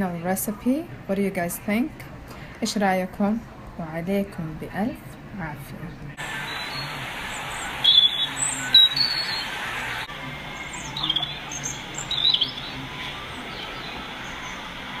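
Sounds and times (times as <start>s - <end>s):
steady background hiss: 4.6s - 15.0s
birds chirping: 6.2s - 15.0s.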